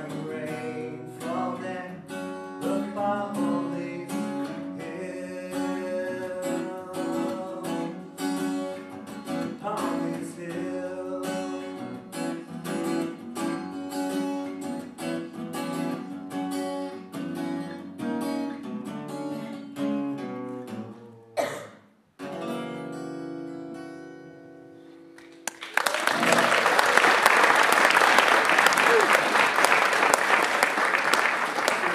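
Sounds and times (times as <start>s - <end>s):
acoustic guitar strumming and picking: 0.0s - 25.4s.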